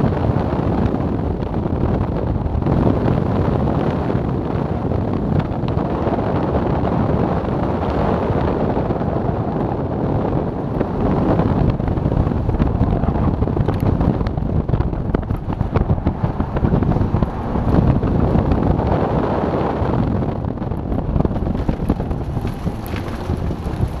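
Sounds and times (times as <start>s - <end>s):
wind noise on microphone: 0.0s - 24.0s
car engine revving: 11.2s - 24.0s.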